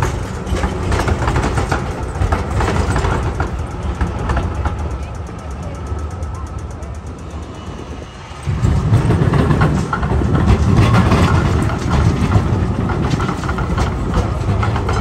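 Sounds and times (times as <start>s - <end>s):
tram wheels rumbling and clicking: 0.0s - 15.0s.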